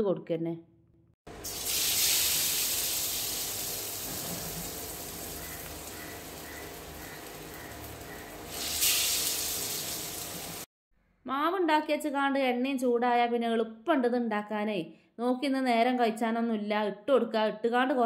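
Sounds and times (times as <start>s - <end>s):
bread sizzling in hot oil: 1.4s - 10.7s.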